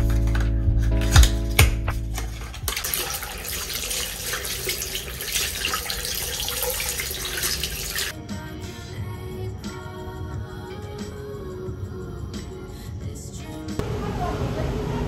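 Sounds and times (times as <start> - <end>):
tap water splashing over hands: 1.2 - 8.1.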